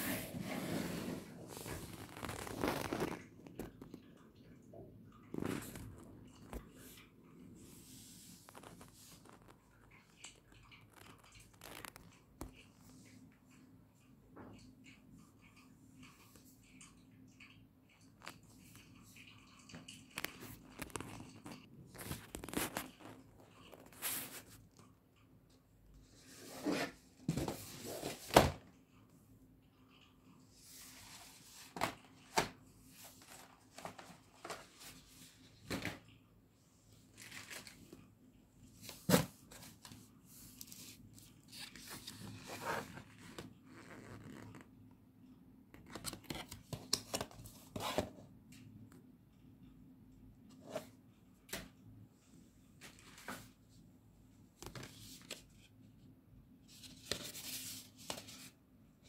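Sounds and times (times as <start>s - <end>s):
paper rustling and crinkling: 0.0s - 3.8s, 20.2s - 24.6s, 30.8s - 36.0s, 37.1s - 38.1s, 38.8s - 43.6s, 52.8s - 53.6s, 54.6s - 55.8s, 56.6s - 58.6s.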